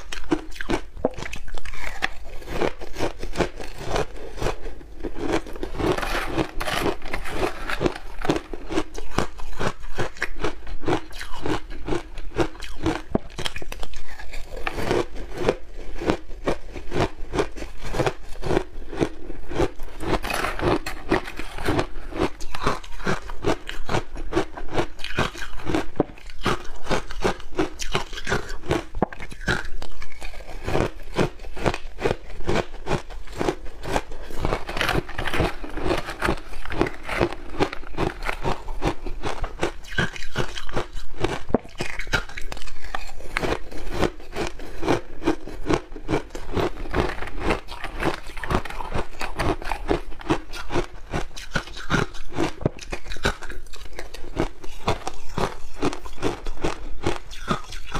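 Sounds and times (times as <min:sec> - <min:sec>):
ice being chewed and crunched: 0:00.0 - 0:57.9.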